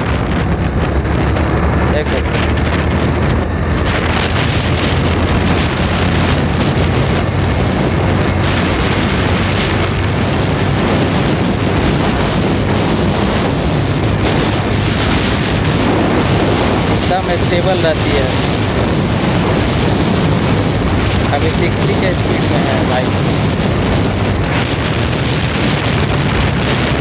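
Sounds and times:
motorcycle engine running: 0.0 - 27.0
wind buffeting microphone: 0.0 - 27.0.

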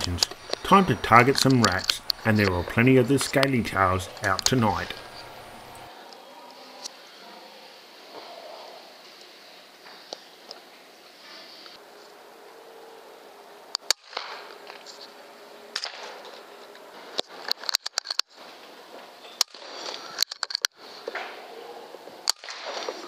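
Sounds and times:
sharp clicks: 0.0 - 5.9
steady low hiss: 0.0 - 13.8.

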